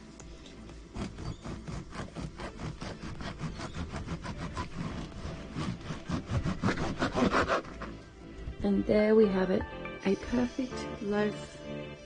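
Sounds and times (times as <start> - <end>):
bread knife sawing crust: 0.8 - 8.0.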